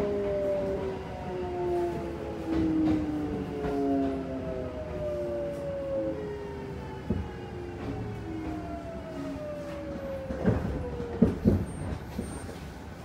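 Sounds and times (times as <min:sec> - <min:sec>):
wheels knocking on rail joints: 0:10.0 - 0:12.6.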